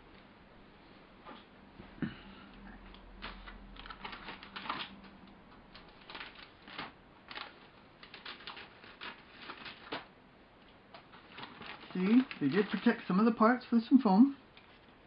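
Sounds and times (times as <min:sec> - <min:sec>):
plastic bags crinkling: 0:03.2 - 0:05.1, 0:05.7 - 0:10.1, 0:11.0 - 0:13.7.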